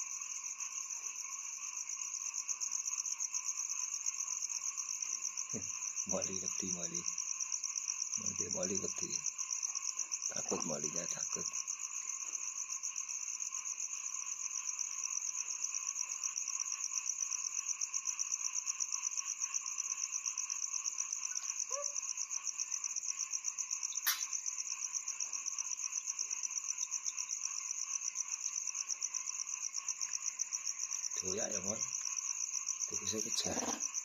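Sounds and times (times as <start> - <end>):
crickets trilling: 0.0 - 34.0
sharp click: 24.0 - 24.3.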